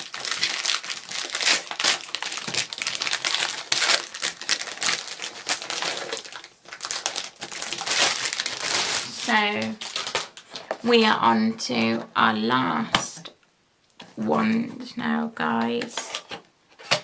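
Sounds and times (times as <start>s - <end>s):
packaging crinkling: 0.0s - 10.9s.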